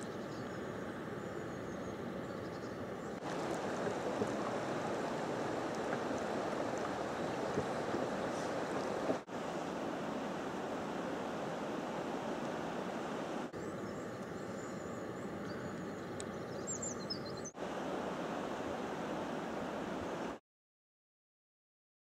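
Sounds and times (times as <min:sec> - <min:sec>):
river water rushing: 0:03.2 - 0:13.6, 0:17.6 - 0:20.4.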